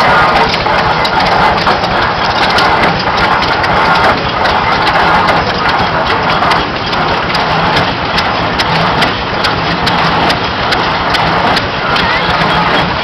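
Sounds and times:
engine running: 0:00.0 - 0:13.0
pump mechanism clicking: 0:00.0 - 0:13.0.

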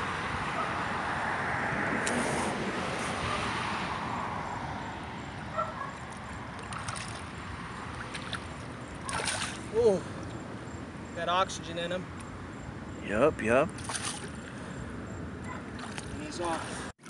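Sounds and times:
small water splashes: 0:06.1 - 0:10.4, 0:13.7 - 0:14.8, 0:15.5 - 0:17.0
shallow water sloshing: 0:06.6 - 0:10.4, 0:13.8 - 0:14.8, 0:15.5 - 0:16.9.

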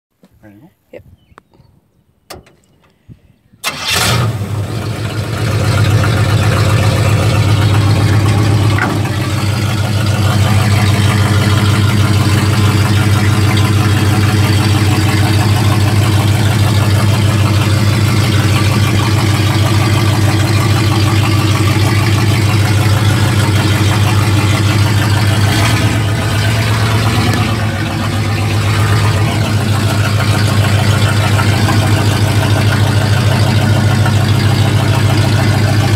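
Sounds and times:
car engine starting and running: 0:02.2 - 0:03.0, 0:03.6 - 0:35.9.

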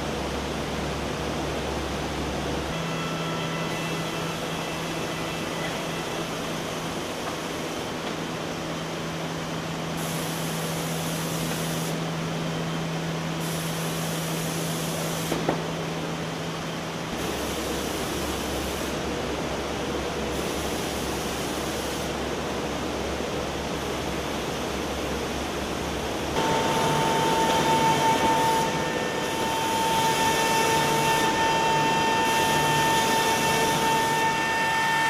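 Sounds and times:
machine hum: 0:00.0 - 0:35.0
machine motors hissing: 0:26.3 - 0:35.0.

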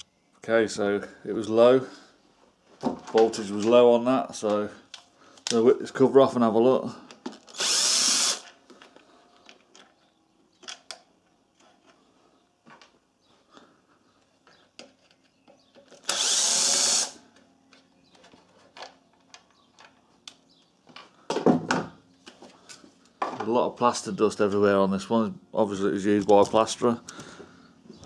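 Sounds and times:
cordless drill spinning: 0:07.5 - 0:08.6, 0:16.0 - 0:17.2.

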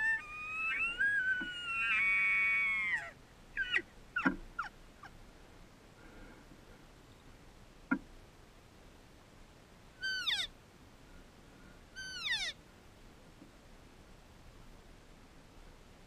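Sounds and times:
elk mew calls: 0:12.0 - 0:12.6.

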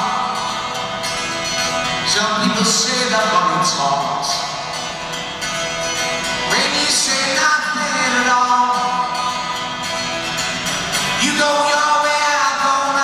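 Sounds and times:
man singing: 0:00.0 - 0:00.9, 0:02.0 - 0:04.6, 0:06.4 - 0:09.4, 0:11.1 - 0:13.0
acoustic guitar strumming: 0:00.0 - 0:13.0.

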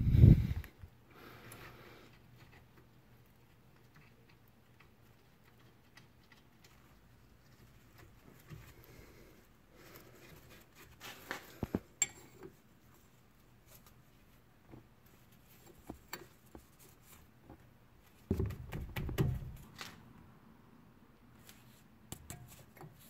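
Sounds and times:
dull knocks: 0:18.3 - 0:19.6.

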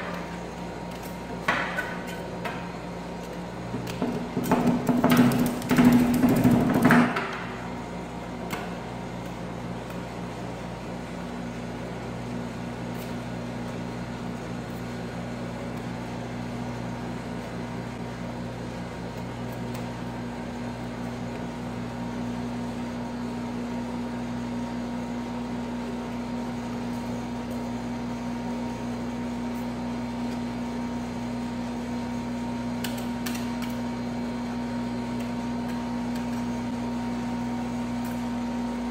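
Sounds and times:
refrigeration unit humming: 0:00.0 - 0:38.9.

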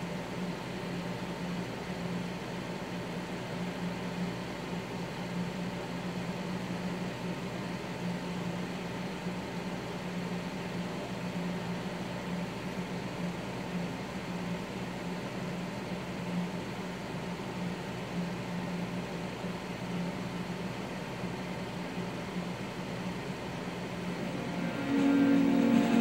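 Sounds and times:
room noise hiss: 0:00.0 - 0:26.0
low hum: 0:23.6 - 0:26.0.

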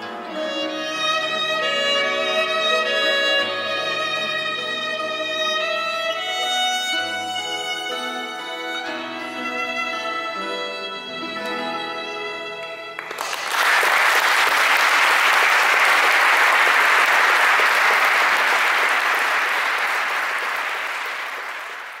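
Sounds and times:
violin holding notes: 0:00.0 - 0:13.1
audience applauding: 0:13.0 - 0:22.0.

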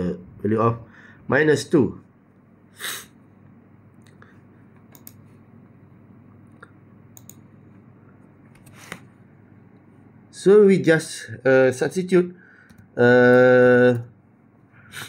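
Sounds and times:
faint clicks: 0:04.8 - 0:05.2, 0:06.6 - 0:07.4.

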